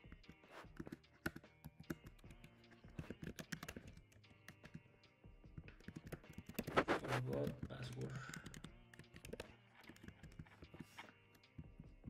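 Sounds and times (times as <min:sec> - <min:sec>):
typing on computer keyboard: 0:00.7 - 0:04.8, 0:05.6 - 0:10.8.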